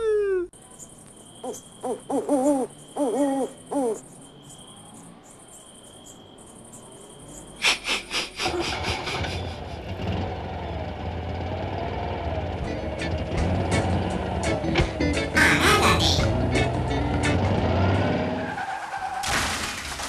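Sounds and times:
insect trill: 0:00.5 - 0:08.2
owl hooting: 0:01.4 - 0:04.1.

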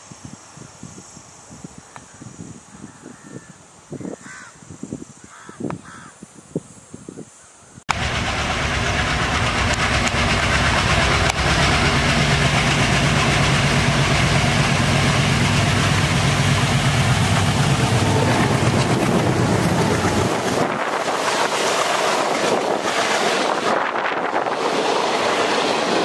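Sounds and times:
diesel locomotive engine rumble: 0:07.9 - 0:26.0
train wheel and rail noise: 0:07.9 - 0:26.0.

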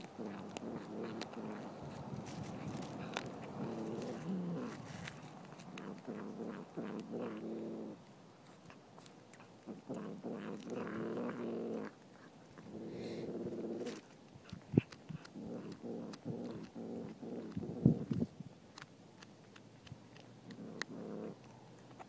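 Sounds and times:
cat growling: 0:00.0 - 0:08.0, 0:09.6 - 0:12.0, 0:12.6 - 0:14.1, 0:14.7 - 0:18.2, 0:20.5 - 0:21.4
cat crunching bones: 0:00.0 - 0:22.0.

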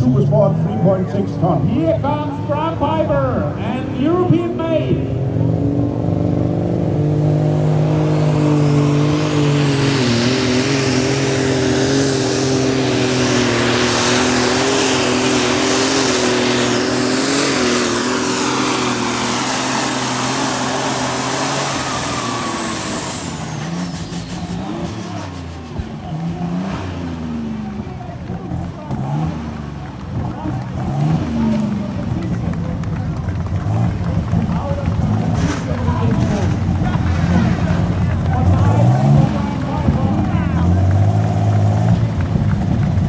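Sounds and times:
high turbo whine: 0:00.0 - 0:43.0
tractor engine at full throttle: 0:00.0 - 0:43.0.

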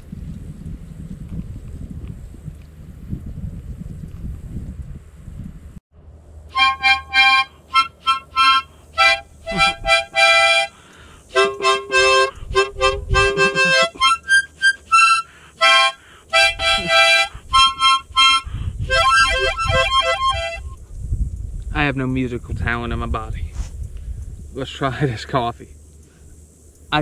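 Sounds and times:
harmonica notes and chords: 0:06.5 - 0:20.8.

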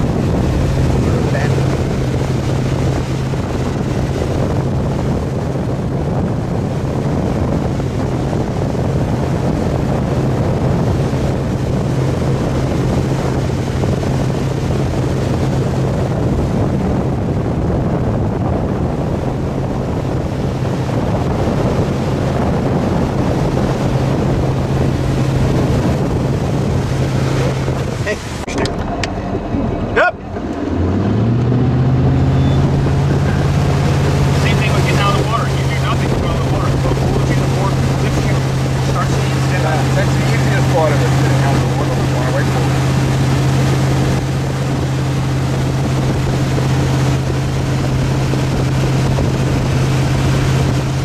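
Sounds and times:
boat engine running: 0:00.0 - 0:51.0
water rushing in wake: 0:00.0 - 0:51.0
wind on microphone: 0:00.0 - 0:51.0.

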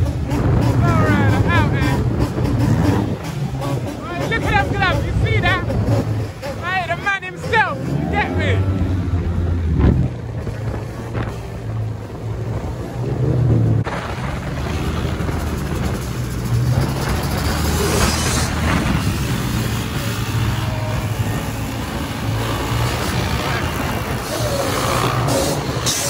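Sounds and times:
motorbike engines running: 0:00.0 - 0:26.0
wind rush: 0:08.1 - 0:25.9.

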